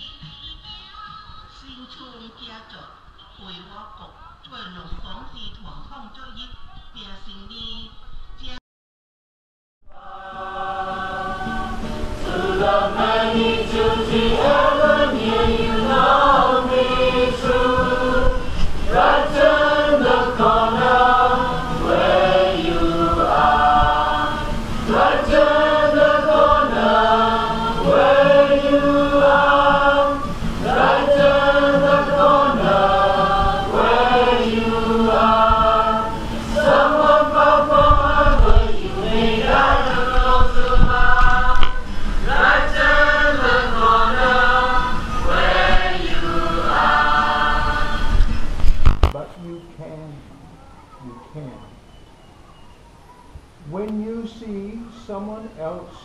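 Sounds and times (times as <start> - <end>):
group of voices singing: 9.9 - 49.0.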